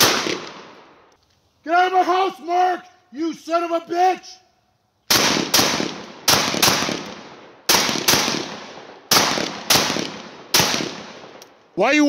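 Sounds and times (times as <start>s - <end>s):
shotgun shots echoing: 0.0s - 1.1s, 5.1s - 11.4s.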